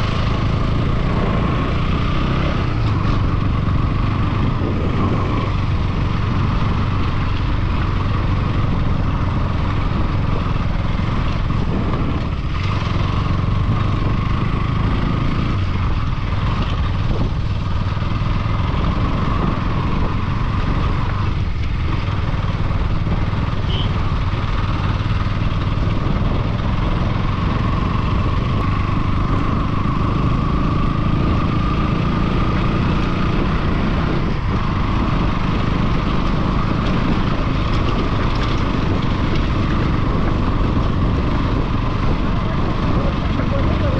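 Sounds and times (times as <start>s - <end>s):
vehicle engine rumbling: 0.0s - 43.9s.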